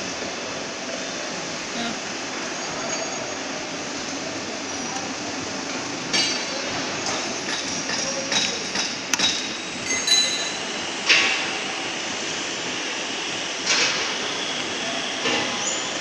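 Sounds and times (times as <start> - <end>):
workshop noise: 3.4 - 12.8
metallic knocks and clinks: 9.2 - 10.7.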